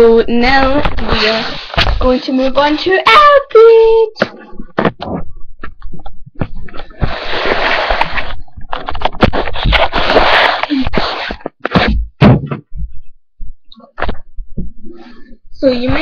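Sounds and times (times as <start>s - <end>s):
rustling and scraping: 0.4s - 13.1s, 13.8s - 16.0s
knocks and bumps: 4.2s - 7.2s, 11.4s - 14.8s.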